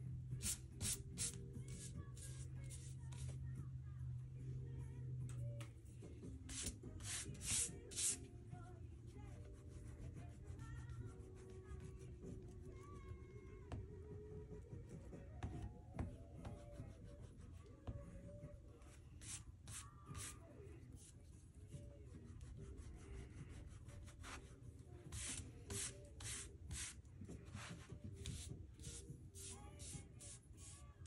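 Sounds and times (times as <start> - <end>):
scratchy rubbing on paper: 9.3 - 12.7, 22.2 - 30.8.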